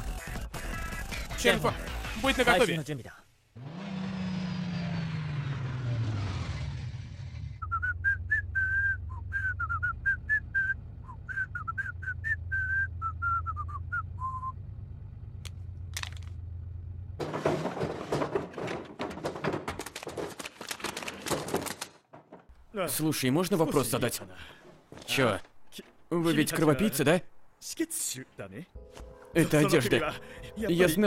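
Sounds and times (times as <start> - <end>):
person whistling a tune: 7.6 - 14.6
banknotes rustling and clattering: 17.2 - 22.6.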